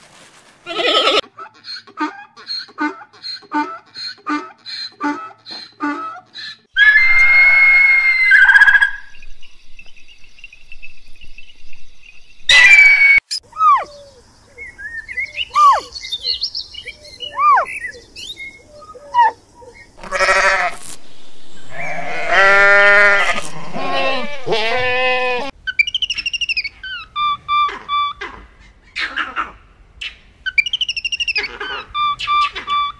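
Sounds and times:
short chirping calls: 0:25.7 - 0:28.2, 0:30.0 - 0:32.9.

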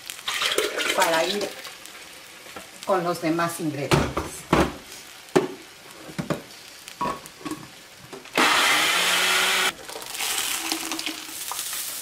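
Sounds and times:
beans sizzling in hot pot: 0:00.0 - 0:12.0
electric blender running: 0:08.4 - 0:09.8.

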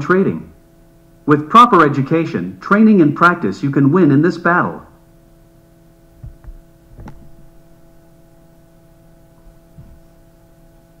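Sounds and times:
low electrical hum: 0:00.0 - 0:11.0
soft thumps: 0:06.2 - 0:07.5, 0:09.7 - 0:10.2.

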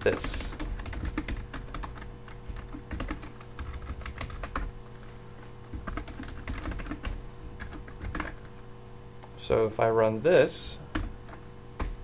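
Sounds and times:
typing on keyboard: 0:00.0 - 0:04.7, 0:05.4 - 0:08.4.

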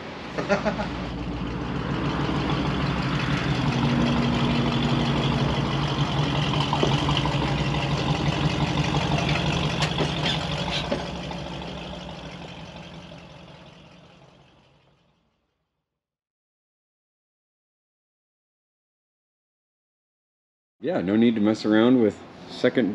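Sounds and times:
engine idling: 0:00.0 - 0:15.5.

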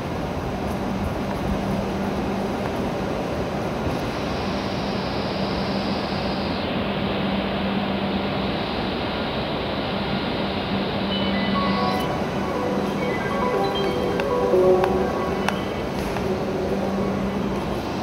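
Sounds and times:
train rumbling to a stop: 0:00.0 - 0:18.0.

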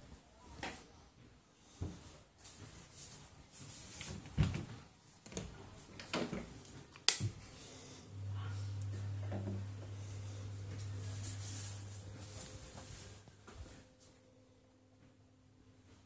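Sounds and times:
low electrical mains hum: 0:00.0 - 0:16.0
knocks and rustles of movement: 0:00.6 - 0:07.6.

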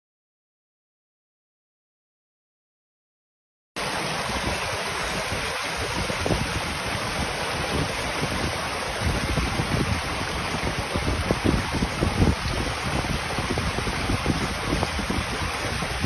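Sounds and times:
stream splashing over stones: 0:03.8 - 0:16.0
wind rumbling on microphone: 0:03.8 - 0:16.0.

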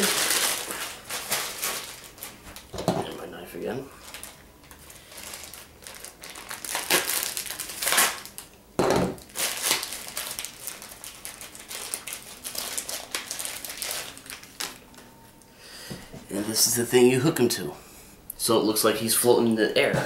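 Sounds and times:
plastic bag crinkling: 0:00.0 - 0:08.5, 0:09.2 - 0:15.1.

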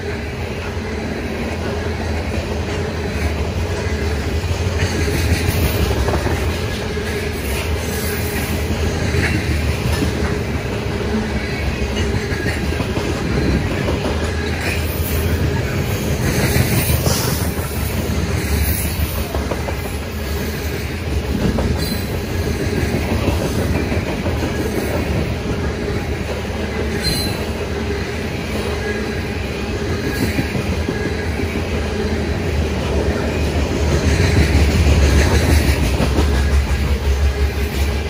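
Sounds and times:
freight train wheels rumbling: 0:00.0 - 0:38.0
high wheel squeal: 0:21.8 - 0:22.2, 0:26.9 - 0:27.6.

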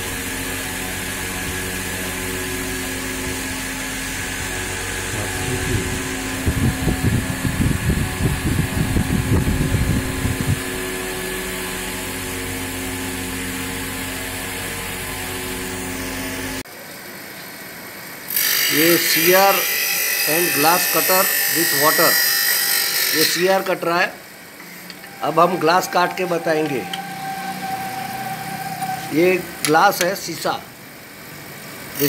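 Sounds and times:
electric motor humming: 0:00.0 - 0:16.6
irregular low rumbling: 0:03.2 - 0:11.9.

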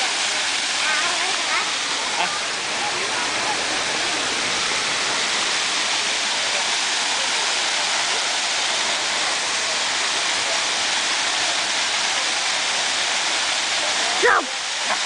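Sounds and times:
running water hiss: 0:00.0 - 0:15.0.

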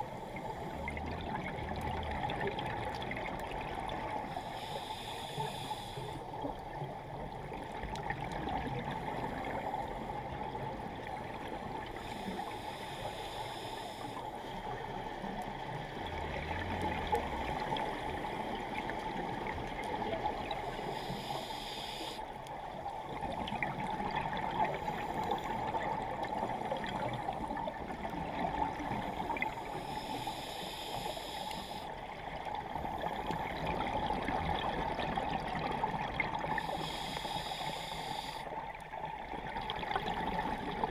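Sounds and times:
gurgling underwater bubbles: 0:00.0 - 0:04.4, 0:06.3 - 0:12.2, 0:14.8 - 0:21.0, 0:22.7 - 0:29.8, 0:32.1 - 0:36.8, 0:38.6 - 0:40.9
underwater hiss: 0:04.0 - 0:06.5, 0:11.9 - 0:14.6, 0:20.0 - 0:22.3, 0:24.4 - 0:27.7, 0:28.7 - 0:32.0, 0:36.3 - 0:38.6.

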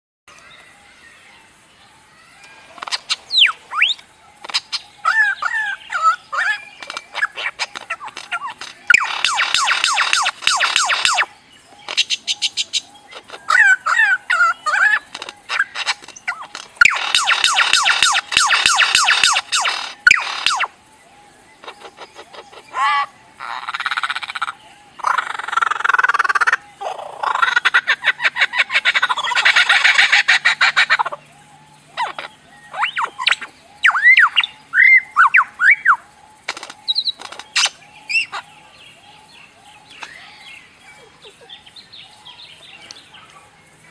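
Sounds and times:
lyrebird singing: 0:00.3 - 0:43.9
rapid rattling trills: 0:05.4 - 0:20.9
sharp clicks: 0:06.8 - 0:12.4, 0:15.1 - 0:20.7, 0:36.4 - 0:37.8.

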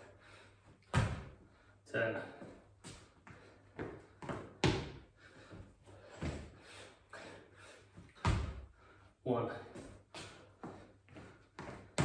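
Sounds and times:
person breathing hard: 0:00.0 - 0:11.9
hands and feet thumping on tile: 0:02.8 - 0:06.6, 0:08.0 - 0:08.7, 0:09.8 - 0:12.0.

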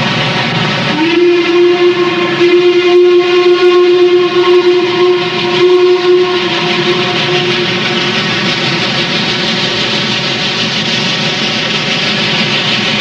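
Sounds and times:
moving train noise: 0:00.0 - 0:13.0
steam locomotive whistle: 0:00.8 - 0:10.1.

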